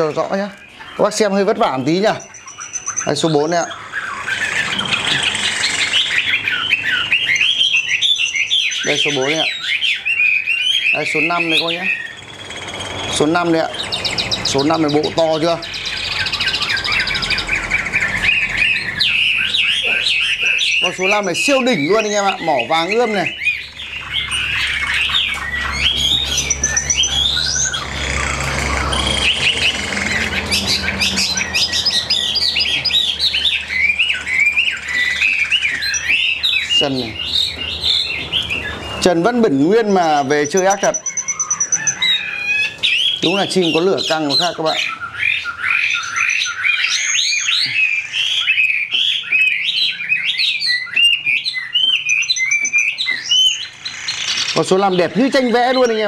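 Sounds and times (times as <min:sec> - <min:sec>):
birds singing and chirping: 0:00.0 - 0:56.0
sharp bird clicks: 0:03.8 - 0:09.0, 0:23.4 - 0:38.8, 0:50.4 - 0:54.9.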